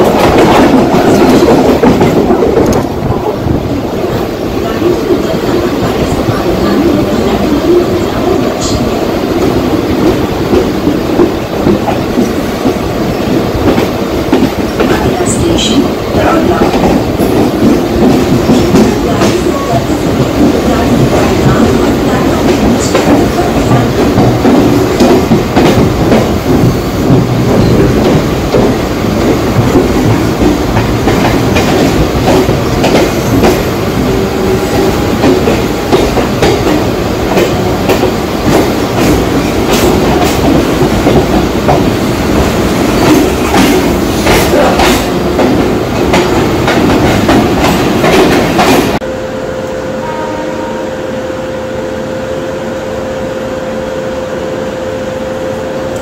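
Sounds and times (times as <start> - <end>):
train wheels clattering: 0.0 - 3.2, 9.4 - 49.0.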